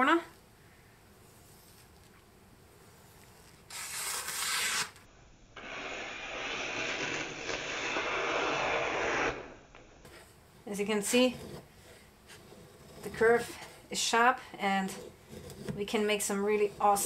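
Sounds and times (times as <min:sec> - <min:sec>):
knife slicing paper: 0:03.3 - 0:09.5.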